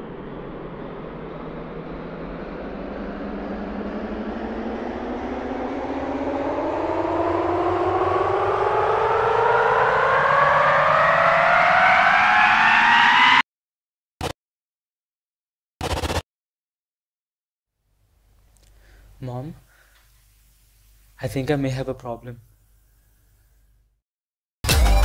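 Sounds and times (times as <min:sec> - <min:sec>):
rising droning tone: 0:00.0 - 0:13.4.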